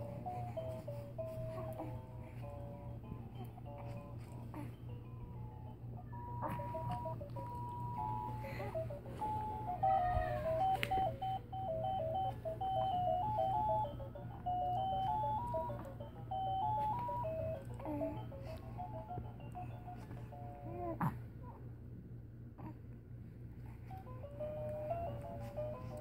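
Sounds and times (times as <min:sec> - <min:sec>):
electronic beeping toy tune: 0:05.0 - 0:20.9.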